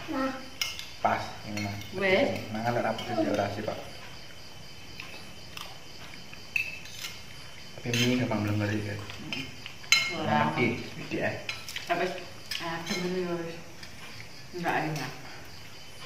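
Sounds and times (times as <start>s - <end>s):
cutlery clinking on plates: 0.6s - 4.2s, 5.0s - 10.4s, 11.0s - 11.9s.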